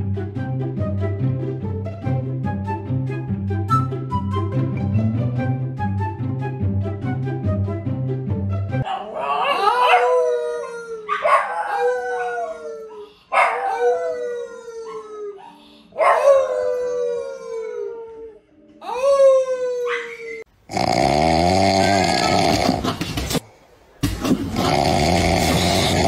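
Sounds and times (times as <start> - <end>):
dog howling: 8.8 - 20.5
man howling: 9.0 - 13.0, 16.0 - 20.4
man snoring loudly: 20.7 - 22.8, 24.5 - 26.0.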